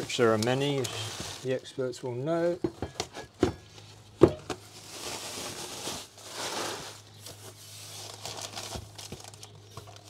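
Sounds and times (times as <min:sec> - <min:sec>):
packing material rustling: 0:00.0 - 0:01.7, 0:04.6 - 0:10.0
tool set down knock: 0:04.2 - 0:04.6.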